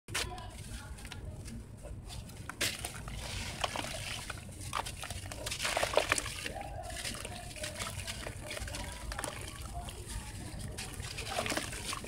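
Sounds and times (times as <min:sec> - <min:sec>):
chunks splashing into water: 0:02.6 - 0:09.6.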